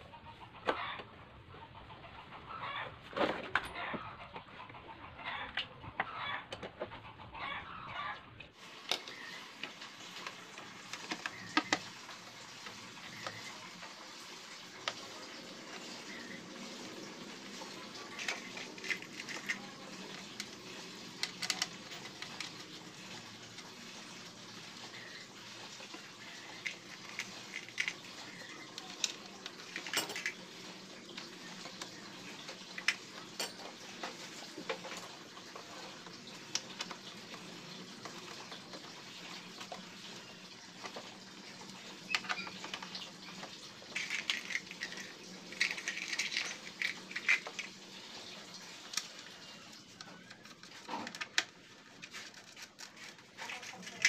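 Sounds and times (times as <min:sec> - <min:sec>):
hand tools and screws clinking: 0:26.2 - 0:37.4, 0:43.9 - 0:47.8.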